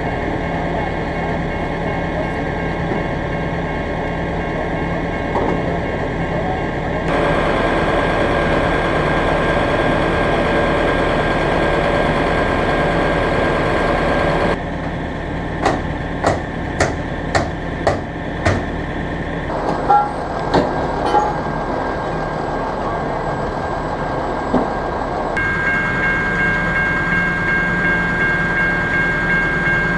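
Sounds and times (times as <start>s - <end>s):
diesel truck engine idling: 5.8s - 21.0s
sharp knocks: 15.6s - 18.7s.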